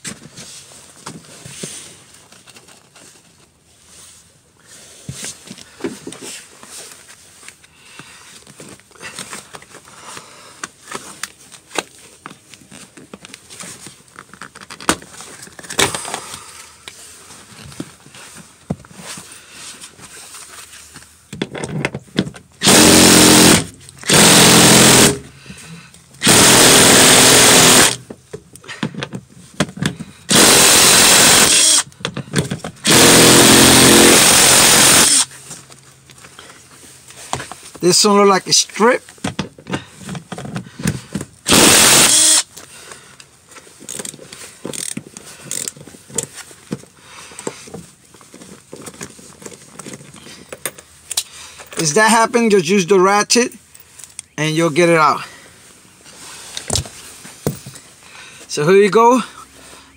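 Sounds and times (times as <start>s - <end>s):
impact gun hammering: 22.6s - 25.2s, 26.2s - 28.0s.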